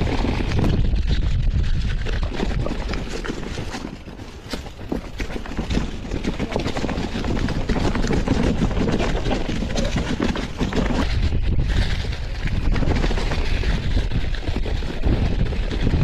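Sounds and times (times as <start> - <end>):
bike rattling over bumps: 0.0 - 16.0
wind on microphone: 0.0 - 16.0
tyres crunching over leaves: 3.2 - 11.8.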